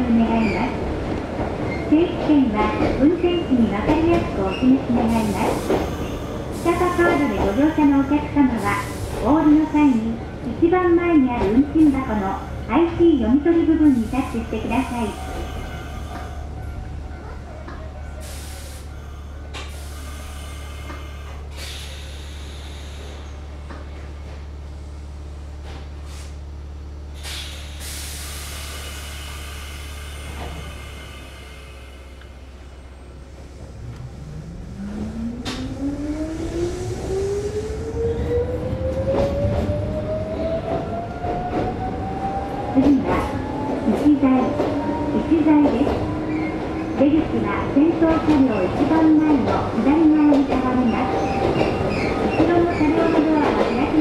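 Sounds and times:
electric train humming: 0.0 - 54.0
air brake hisses: 18.2 - 18.9, 19.6 - 23.4, 26.0 - 26.4, 27.2 - 32.2.

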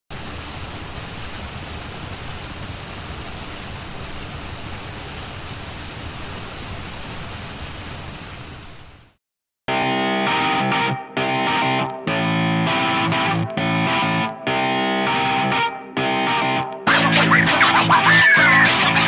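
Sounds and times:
waterfall rushing: 16.9 - 19.0.

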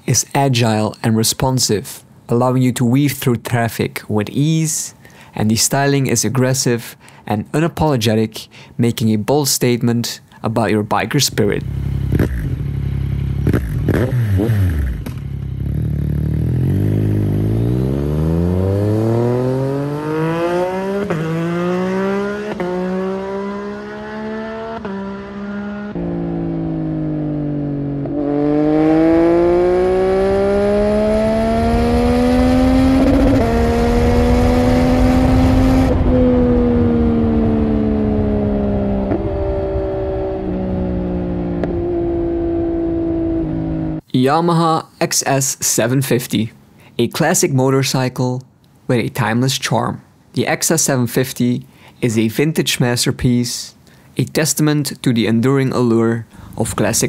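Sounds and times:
motorcycle engine accelerating: 11.5 - 44.0.

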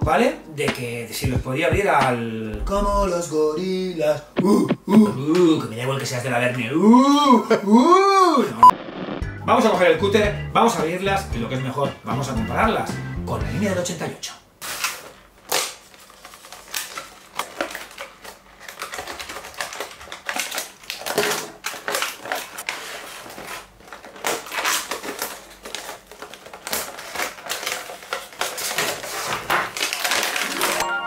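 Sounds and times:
plastic blister packs crackling: 14.6 - 30.8.

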